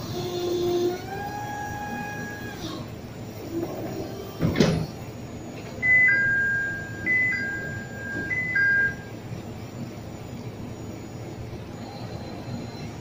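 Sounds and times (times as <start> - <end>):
forklift warning chime: 5.8 - 9.2.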